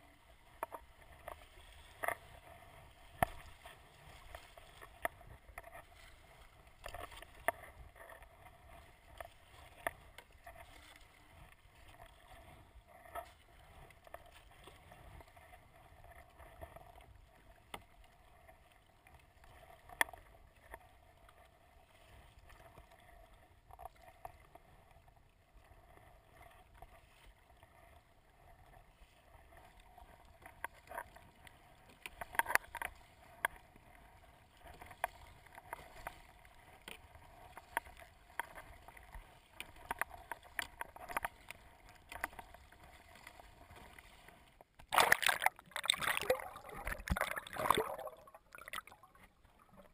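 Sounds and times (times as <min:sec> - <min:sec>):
kayak paddle strokes: 0:00.0 - 0:49.9
water sloshing against hull: 0:00.0 - 0:49.9
sharp water slaps: 0:44.9 - 0:48.0.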